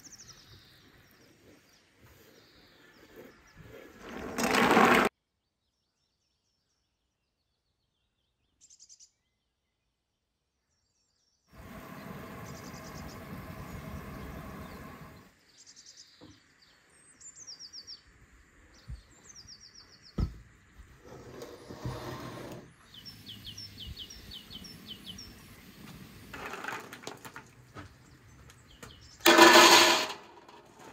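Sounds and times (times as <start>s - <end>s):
songbirds trilling: 11.6s - 18.1s, 21.0s - 29.2s.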